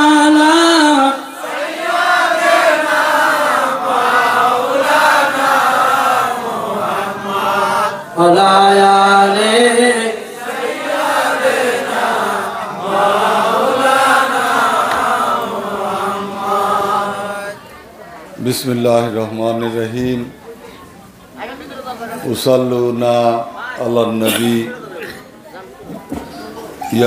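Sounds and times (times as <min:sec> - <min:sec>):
person chanting: 0:00.0 - 0:17.5.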